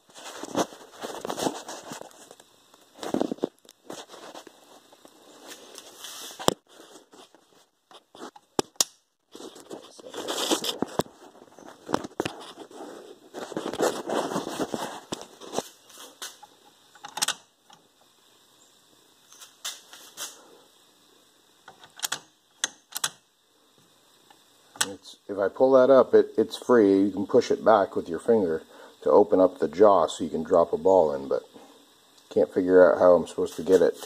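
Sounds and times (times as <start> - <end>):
rustling handling noise: 0.0 - 8.6, 9.3 - 16.5, 33.3 - 34.0.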